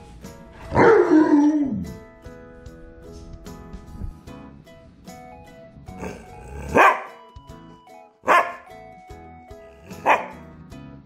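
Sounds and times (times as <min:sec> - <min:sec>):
background music: 0:00.0 - 0:11.0
dog barking: 0:00.7 - 0:01.4, 0:06.0 - 0:07.2, 0:08.2 - 0:08.7, 0:09.8 - 0:10.4.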